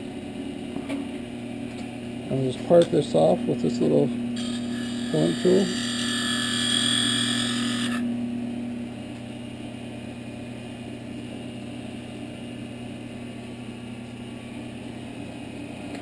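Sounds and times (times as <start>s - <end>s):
lathe motor humming: 3.1s - 8.1s
lathe tool scraping whine: 4.4s - 8.1s.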